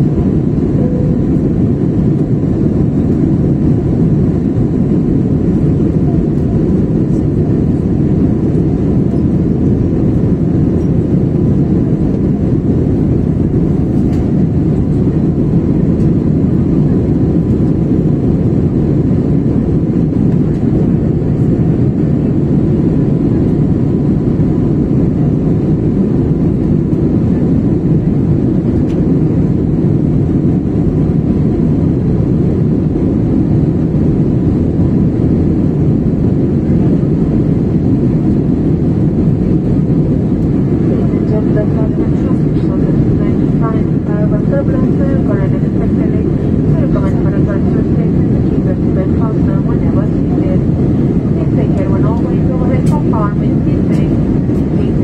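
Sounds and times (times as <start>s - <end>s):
airliner cabin noise: 0.0s - 55.0s.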